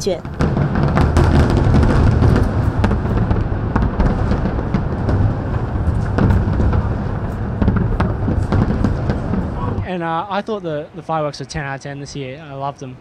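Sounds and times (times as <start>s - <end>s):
fireworks booming: 0.0s - 10.3s
sharp fireworks cracks: 0.0s - 10.3s.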